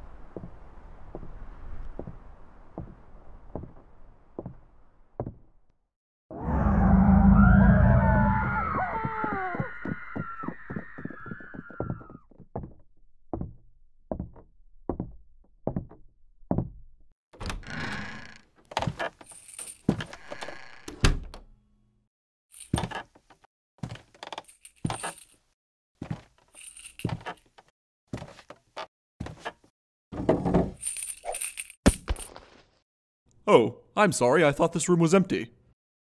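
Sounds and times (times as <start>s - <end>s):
door opening: 17.4s - 19.2s
metallic jingling: 26.6s - 27.4s, 30.8s - 32.3s.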